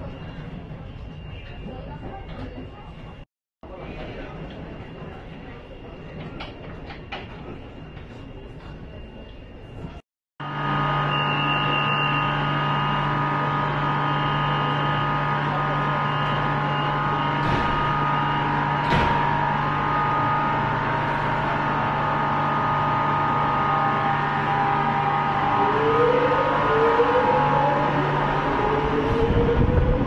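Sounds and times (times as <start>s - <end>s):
train electric hum and whine: 0.0s - 30.0s
traction motor whine rising: 10.4s - 30.0s.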